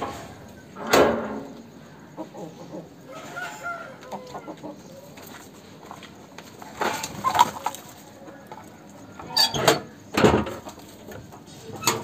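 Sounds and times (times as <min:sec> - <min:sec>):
rooster calling: 0:02.2 - 0:05.0.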